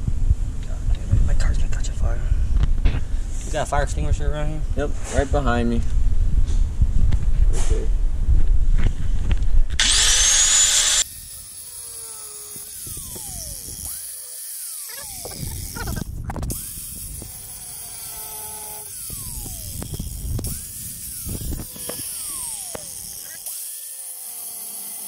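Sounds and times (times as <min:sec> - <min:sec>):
angle grinder cutting steel: 0:09.8 - 0:25.0.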